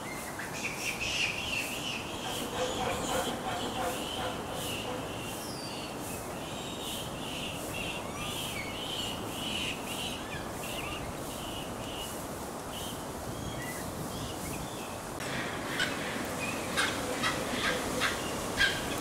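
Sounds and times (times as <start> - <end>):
small birds chirping: 0.0 - 15.1.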